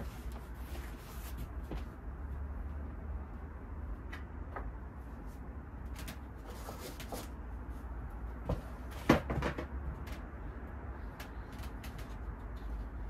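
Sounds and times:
steady low hum: 0.0 - 13.0
board clunk and clatter: 8.4 - 10.0.

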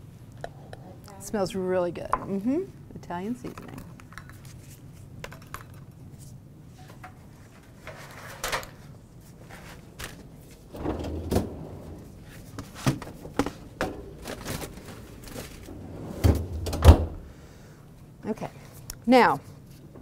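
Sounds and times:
freezer drawer sliding open: 10.6 - 17.3
drawer shutting with thud: 10.7 - 15.0, 15.7 - 17.2.

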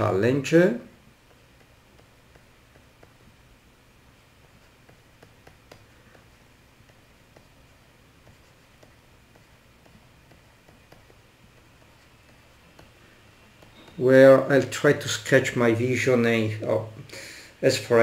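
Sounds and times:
low steady hum: 0.0 - 18.0
stylus tapping and scratching: 1.0 - 3.6, 4.2 - 14.6.

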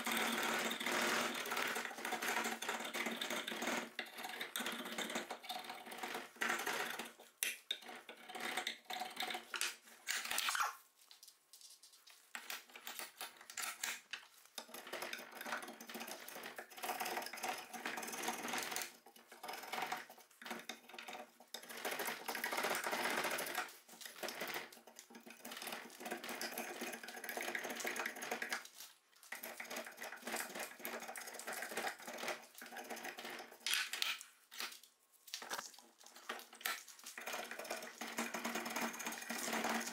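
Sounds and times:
drawknife scraping wood: 12.9 - 14.7, 33.2 - 34.8.

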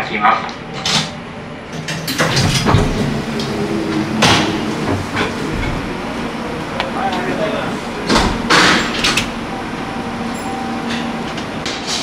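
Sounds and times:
steady low hum: 0.0 - 12.0
train door knocks and clunks: 1.8 - 6.2, 8.0 - 9.5.

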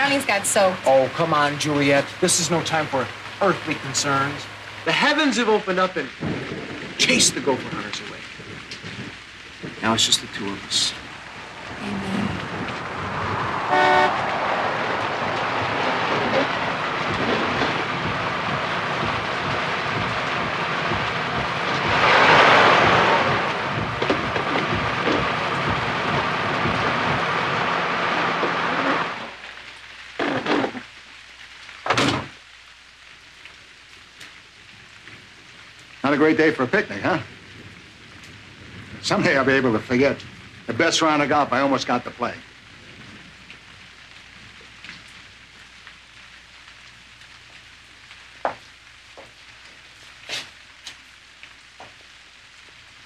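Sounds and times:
heavy rain hissing: 0.0 - 53.0
loud thumps: 8.4 - 27.7.

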